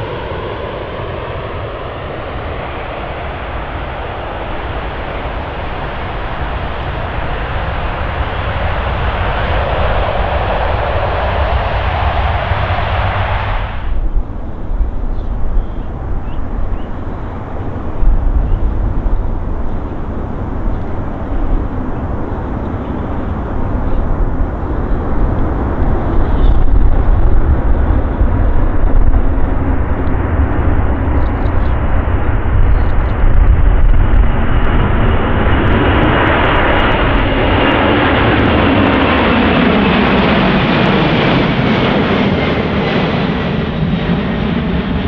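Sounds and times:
high jet engine whine: 0.0 - 45.0
jet engines rumbling: 0.0 - 45.0.

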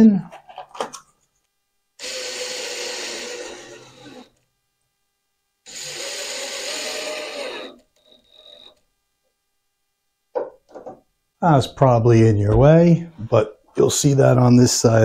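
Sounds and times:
cordless drill driving screws: 2.0 - 4.4, 5.7 - 8.8.

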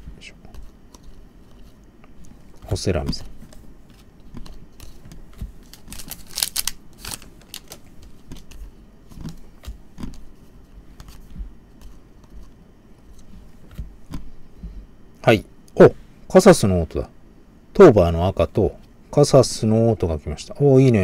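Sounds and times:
trading cards flipped clicking: 4.3 - 8.6.

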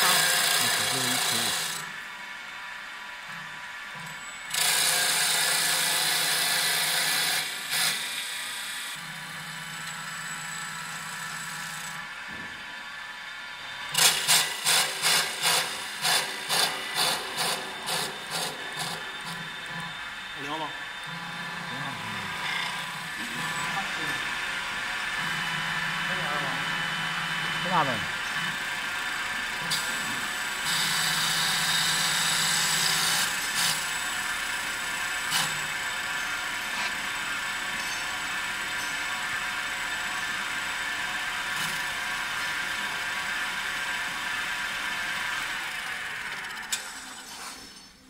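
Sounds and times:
wood lathe whining: 0.0 - 2.7, 4.1 - 47.4
machine hum: 9.0 - 44.4.

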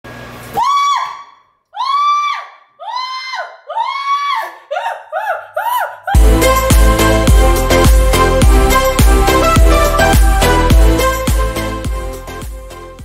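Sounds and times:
woman squealing: 0.6 - 6.3.

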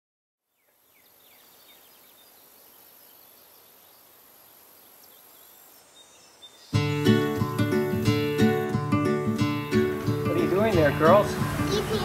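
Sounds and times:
small birds chirping: 0.5 - 12.0.

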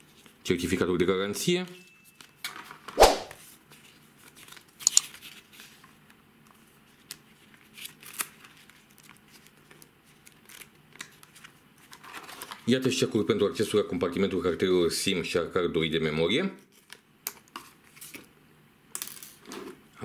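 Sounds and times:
paper rustling and crinkling: 3.4 - 12.8.

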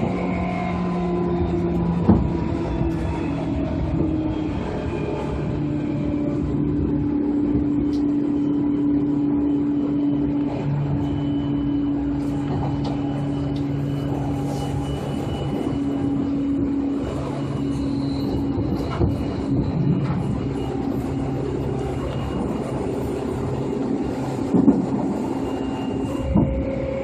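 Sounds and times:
electric train motor hum: 0.0 - 27.0
wheels rumbling on rail: 0.0 - 27.0.

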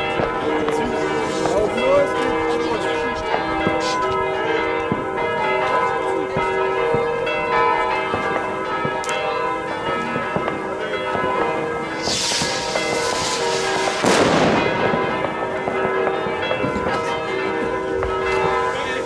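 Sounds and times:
distant fireworks cracks: 0.0 - 2.4, 8.0 - 9.2, 9.8 - 19.0
church bells ringing: 0.0 - 19.0.

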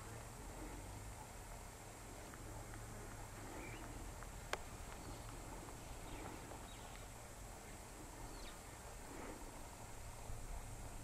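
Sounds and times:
rhinos cropping short grass: 2.0 - 7.2.

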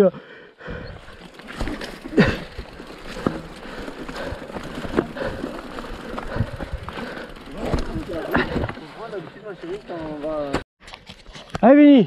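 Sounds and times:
bike knocking and rattling: 1.0 - 10.6
bike tyres crunching on dirt: 1.0 - 10.6.

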